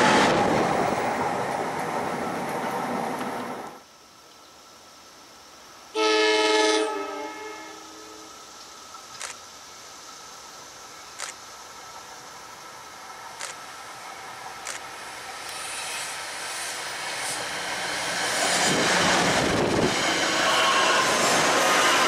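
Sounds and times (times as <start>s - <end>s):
train passing: 0.0s - 3.8s, 9.6s - 22.0s
wheels rushing on rails: 0.0s - 3.8s, 11.7s - 22.0s.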